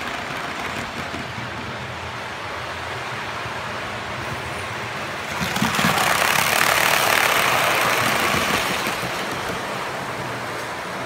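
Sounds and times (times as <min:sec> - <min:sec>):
model train wheels rolling on rails: 0:00.0 - 0:11.0.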